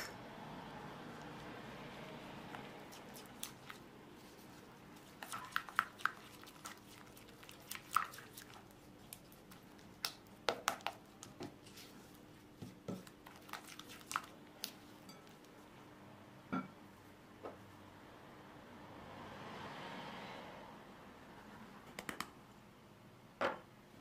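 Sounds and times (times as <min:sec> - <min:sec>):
spatula squishing thick batter: 0:00.9 - 0:15.6.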